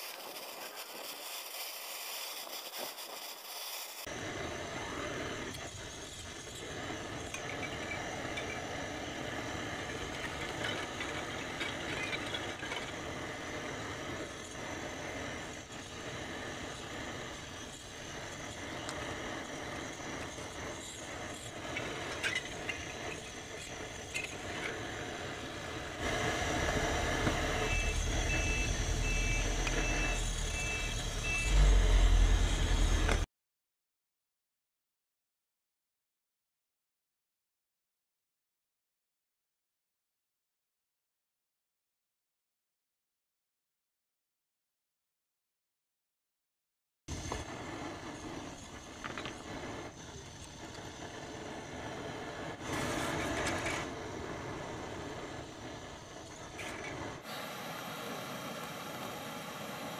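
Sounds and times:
reversing alarm beeps: 0:27.5 - 0:31.8.

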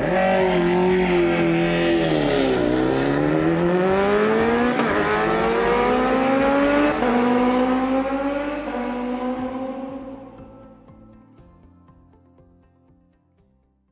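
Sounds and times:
motorcycle engine accelerating: 0:00.0 - 0:10.6.

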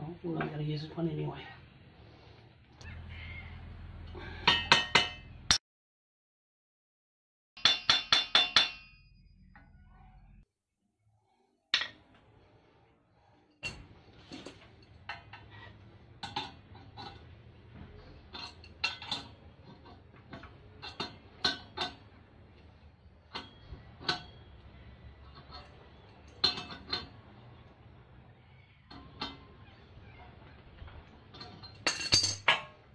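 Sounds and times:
metal tools clinking: 0:18.0 - 0:22.1, 0:30.9 - 0:32.8.

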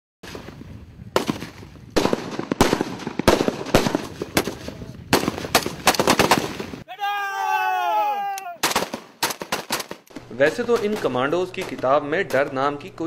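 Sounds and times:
rifle single shots: 0:01.2 - 0:06.8, 0:08.6 - 0:12.7.

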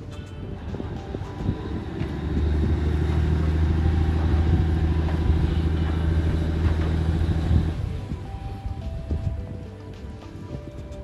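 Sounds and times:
ferry engine droning: 0:00.0 - 0:11.0.

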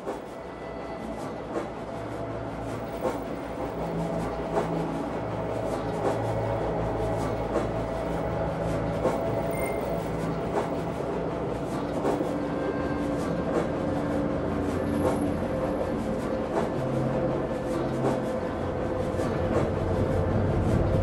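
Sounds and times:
train running hum: 0:00.0 - 0:21.0
train wheels clicking over rail joints: 0:02.7 - 0:08.2, 0:08.8 - 0:12.4.

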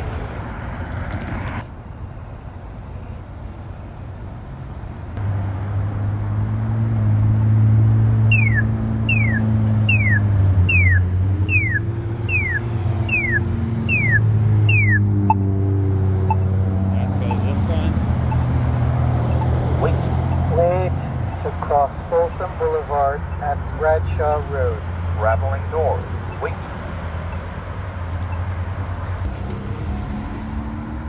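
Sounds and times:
road traffic rumbling: 0:00.0 - 0:31.0
falling chirps: 0:08.3 - 0:15.4.

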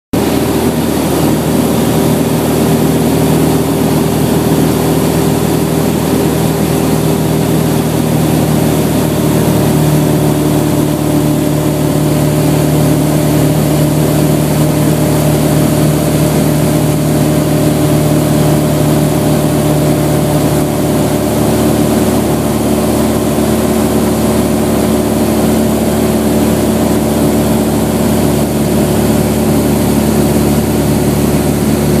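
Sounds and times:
aircraft engine and propeller droning: 0:00.2 - 0:32.0.

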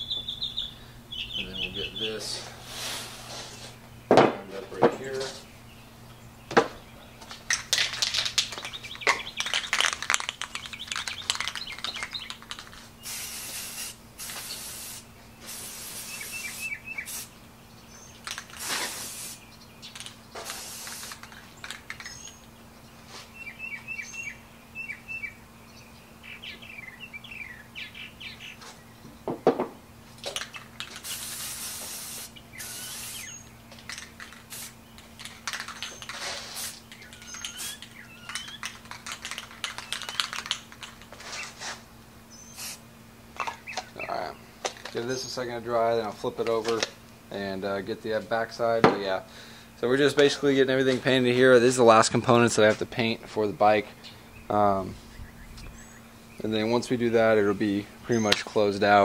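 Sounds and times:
birds chirping: 0:00.0 - 0:59.0
spray can rattling: 0:07.4 - 0:17.3, 0:18.2 - 0:22.3, 0:30.2 - 0:41.8, 0:42.6 - 0:42.8
spray can hissing: 0:09.4 - 0:17.3, 0:18.2 - 0:19.4, 0:20.0 - 0:22.2, 0:30.4 - 0:41.8, 0:42.4 - 0:42.8.

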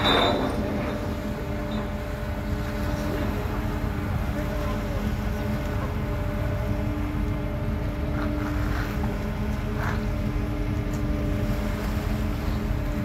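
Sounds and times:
ship engines rumbling: 0:00.0 - 0:13.0
small waves splashing: 0:00.0 - 0:13.0.

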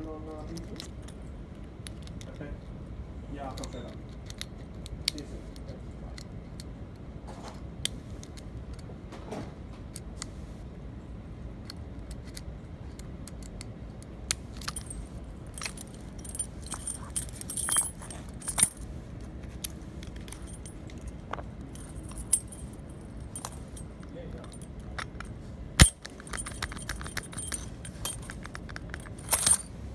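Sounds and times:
lock pick clicks and scrapes: 0:14.3 - 0:18.8, 0:24.5 - 0:29.7
padlock shackle and key jingling: 0:14.4 - 0:29.9.

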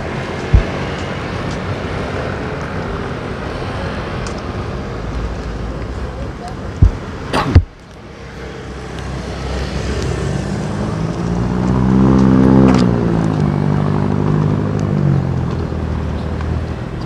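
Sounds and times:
steady traffic noise: 0:00.0 - 0:17.0
vehicle engine passing by: 0:08.5 - 0:16.0.

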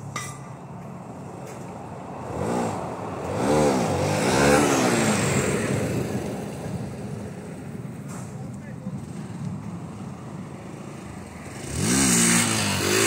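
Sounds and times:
motorcycle engine revving past: 0:02.2 - 0:07.3, 0:10.9 - 0:13.0.

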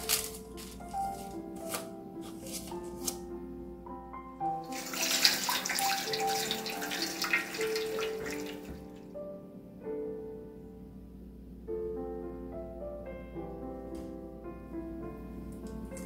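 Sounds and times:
soft piano music: 0:00.0 - 0:16.0
water pouring into metal pan: 0:04.6 - 0:09.0.

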